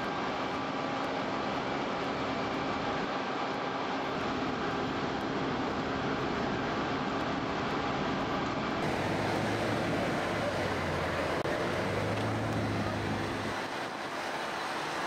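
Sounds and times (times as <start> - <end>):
engine and machinery noise: 0.0 - 15.0.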